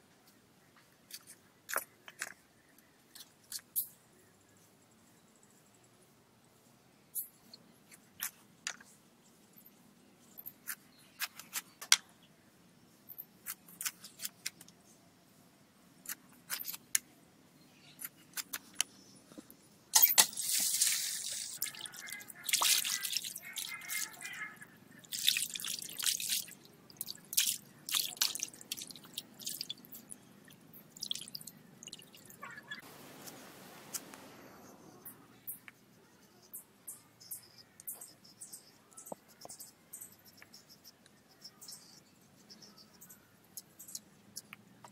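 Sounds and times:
hands splashing in water: 22.4 - 23.7.

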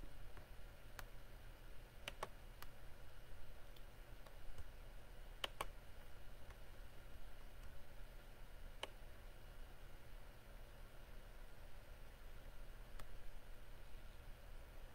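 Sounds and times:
low steady hum: 0.0 - 14.9
computer mouse clicking: 2.0 - 2.8, 3.6 - 4.7, 5.4 - 5.8, 8.7 - 9.0, 12.9 - 13.2.

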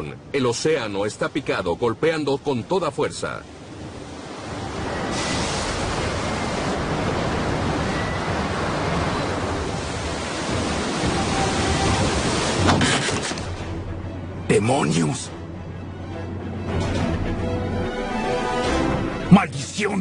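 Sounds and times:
water splashing along boat hull: 4.2 - 13.8.

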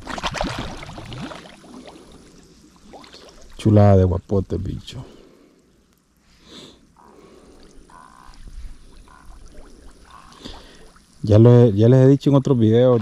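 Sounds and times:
short water splashes: 0.0 - 3.7, 12.6 - 13.0
water trickling and sloshing: 0.0 - 4.1, 6.9 - 13.0.

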